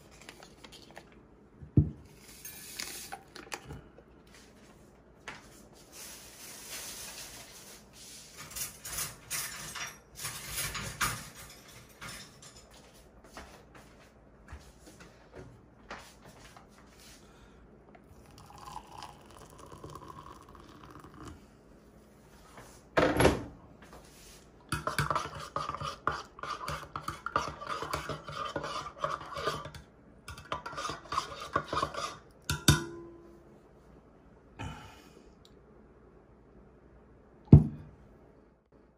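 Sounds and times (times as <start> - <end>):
metal spoon stirring in mug: 18.3 - 21.3, 24.8 - 32.7.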